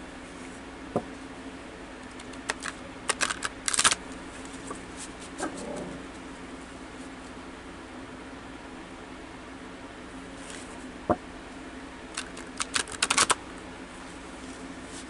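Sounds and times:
cards rustling: 2.0s - 5.4s, 12.1s - 13.4s
cards being shuffled: 2.0s - 5.8s, 12.1s - 13.4s.

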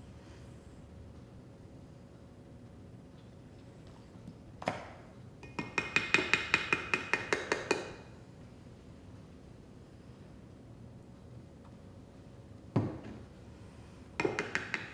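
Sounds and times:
spoon tapping glass cup rim: 5.4s - 7.9s.

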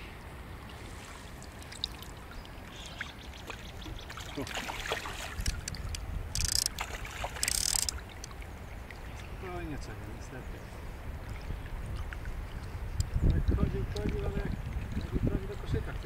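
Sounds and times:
steady water hiss: 0.0s - 16.0s
fish splashing in water: 0.7s - 9.0s.

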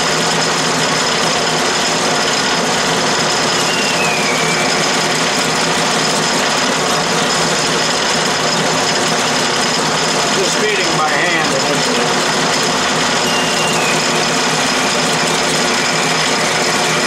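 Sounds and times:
metal lathe motor whining: 0.0s - 17.0s
falling squeal: 3.3s - 6.0s, 13.1s - 17.0s.

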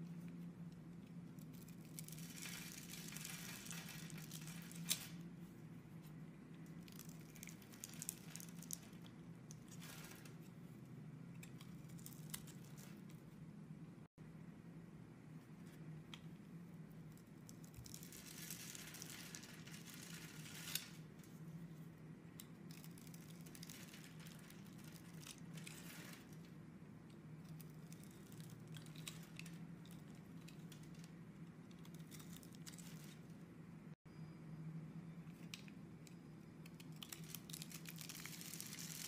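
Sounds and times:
soap crackling and crunching: 1.2s - 5.2s, 6.6s - 10.4s, 17.1s - 21.0s, 22.4s - 26.6s, 27.4s - 33.2s, 36.6s - 39.0s.

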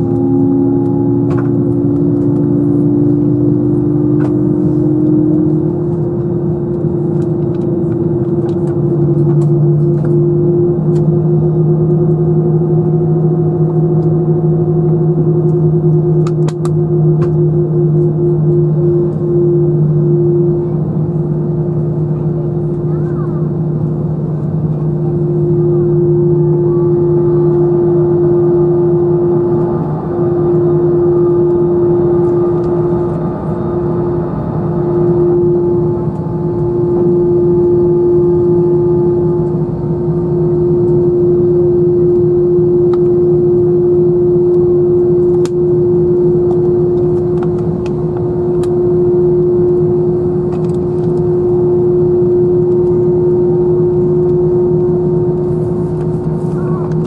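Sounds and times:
jet engines droning in cabin: 0.0s - 57.0s.

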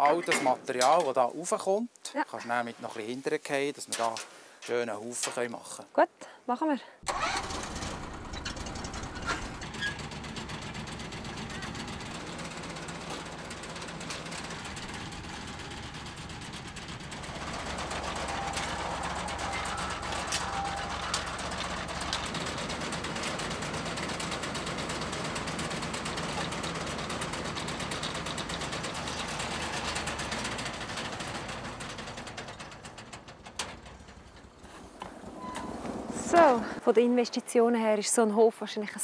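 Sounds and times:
harvesting machine engine drone: 7.1s - 33.0s
cutter and conveyor rattle: 7.1s - 34.4s.

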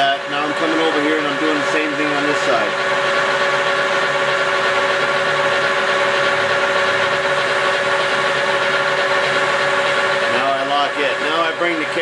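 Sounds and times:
lathe mechanical hum: 0.0s - 12.0s.

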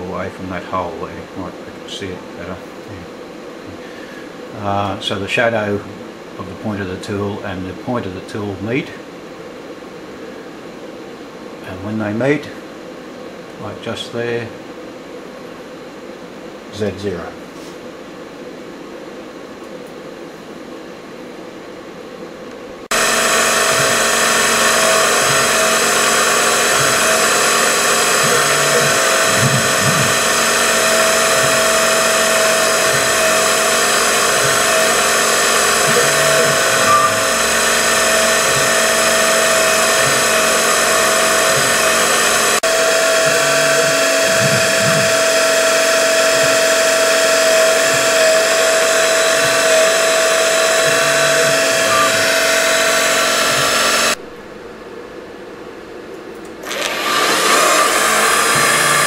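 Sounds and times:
milling machine high whine: 22.8s - 54.2s, 56.6s - 59.0s.

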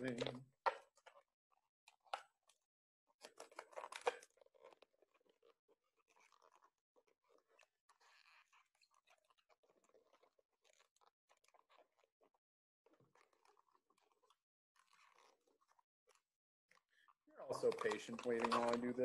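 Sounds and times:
balloon rubber crackling: 13.0s - 19.0s.

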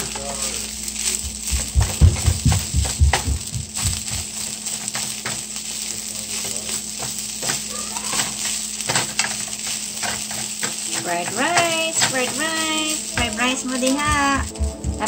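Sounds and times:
rice sizzling in a frying pan: 0.0s - 15.0s
spatula scraping and tapping pan: 6.4s - 14.8s.

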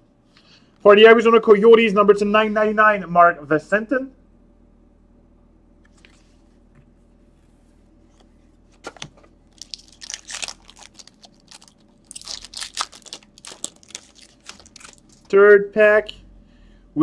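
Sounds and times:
card pack wrapper tearing and crinkling: 8.9s - 15.3s.

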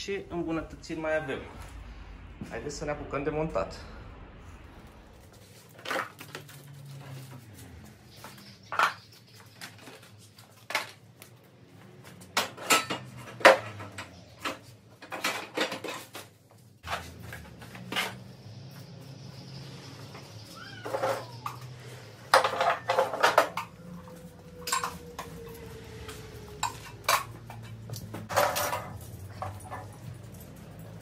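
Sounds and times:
metal parts and tools clinking: 5.5s - 18.9s, 20.0s - 31.0s.

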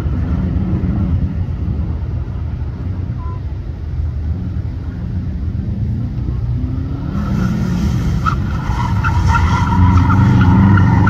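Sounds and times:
car engine running hard: 0.0s - 11.0s
tyre squeals: 7.2s - 11.0s.

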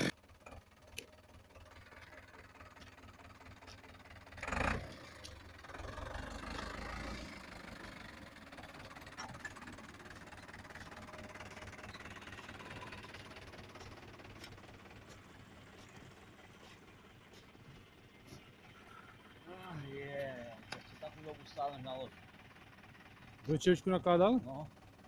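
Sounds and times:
tractor diesel engine rumbling: 0.0s - 25.0s.

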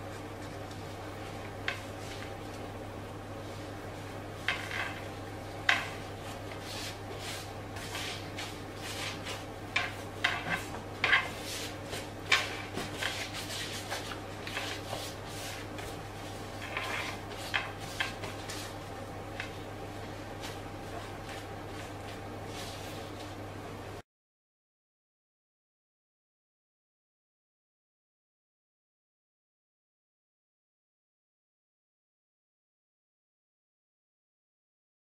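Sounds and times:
dough rolled on wooden board: 0.0s - 2.8s, 3.4s - 23.4s
steady low hum: 0.0s - 24.0s.

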